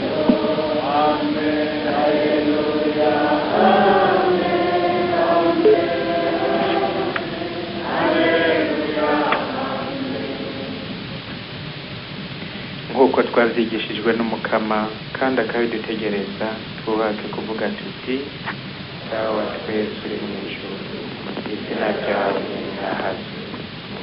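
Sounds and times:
congregation singing a hymn: 0.0s - 11.3s, 19.0s - 24.0s.

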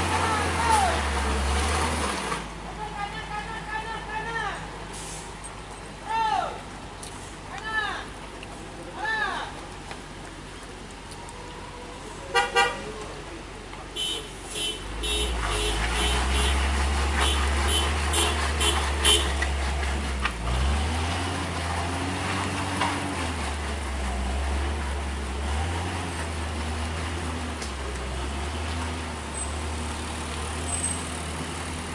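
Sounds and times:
truck diesel engine droning: 0.0s - 31.9s
horn toots: 12.3s - 12.9s, 14.0s - 19.5s.

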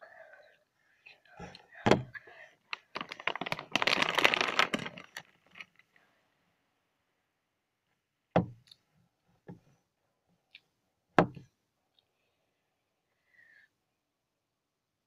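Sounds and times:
plastic wrapper crinkling: 2.7s - 6.0s.

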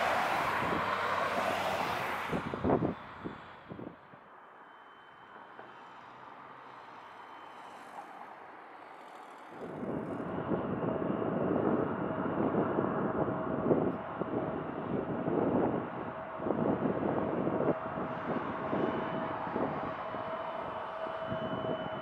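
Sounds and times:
faint jet whine: 1.5s - 22.0s
loud jet engine noise: 9.6s - 21.8s.

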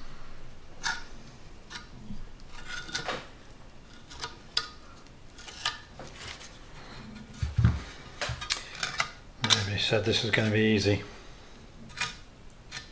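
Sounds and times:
metal knife scraping metal: 1.7s - 3.2s, 11.9s - 12.9s.

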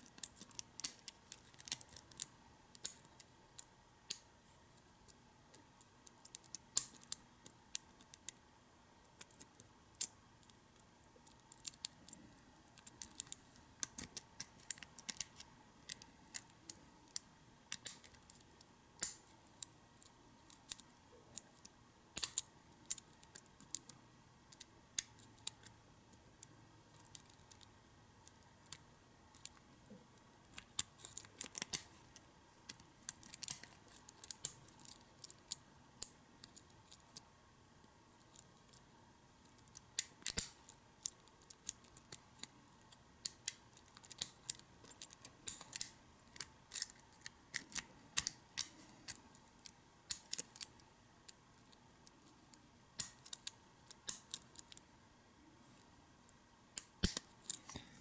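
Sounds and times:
lock pick clicking and scraping: 43.2s - 49.2s.

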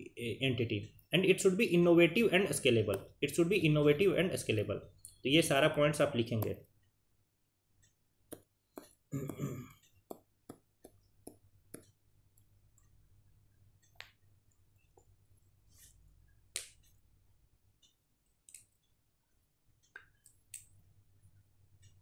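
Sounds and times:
small clicks and taps: 9.8s - 13.0s, 13.8s - 15.2s, 17.8s - 19.0s.

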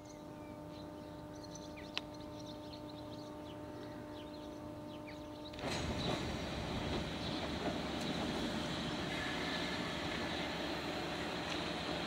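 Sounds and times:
small birds chirping: 0.0s - 6.3s
faint hum: 0.0s - 12.0s
electric train arriving: 5.5s - 12.0s.

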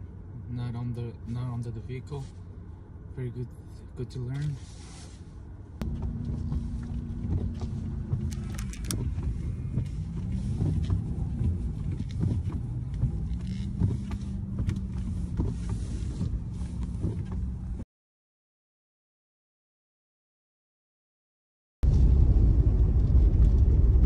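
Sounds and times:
truck engine at part throttle: 5.8s - 17.8s.

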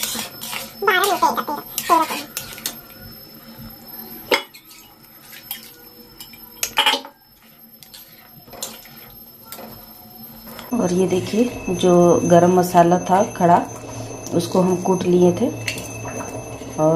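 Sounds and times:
metal cookware clinking: 4.3s - 7.2s.

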